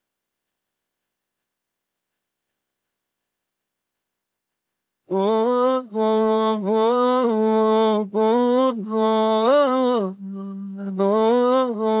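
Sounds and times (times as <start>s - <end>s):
man singing long notes: 5.1s - 12.0s.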